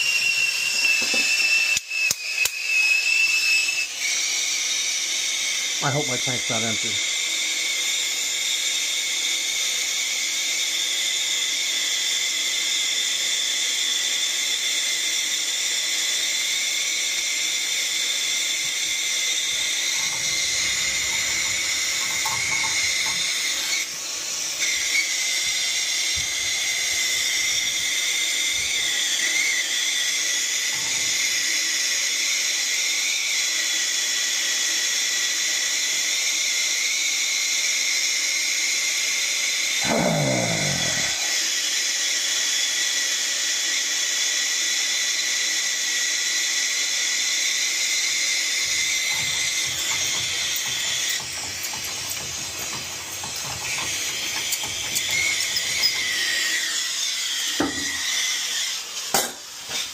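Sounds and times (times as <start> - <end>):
gas torch hissing: 18.0 - 29.8, 39.8 - 41.5, 57.4 - 58.0.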